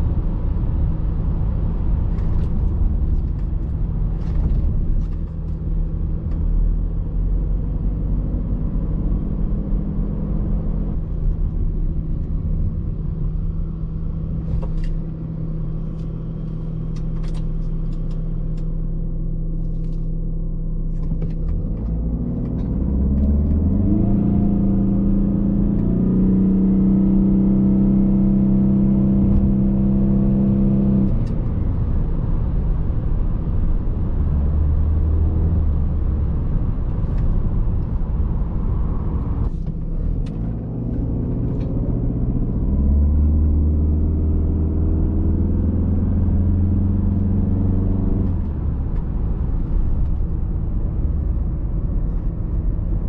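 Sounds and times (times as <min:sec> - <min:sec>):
diesel car engine revving: 0:21.1 - 0:53.0.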